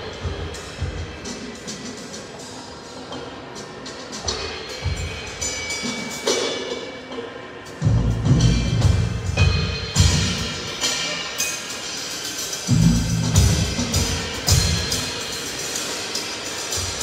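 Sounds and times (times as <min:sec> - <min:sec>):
cymbal crashes: 0:07.8 - 0:17.0.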